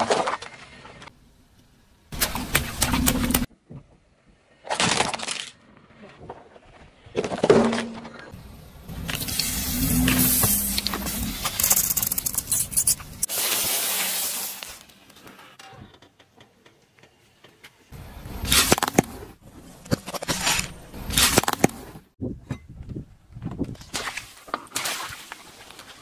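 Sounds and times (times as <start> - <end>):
liquid squirting hiss: 8.9 - 14.8.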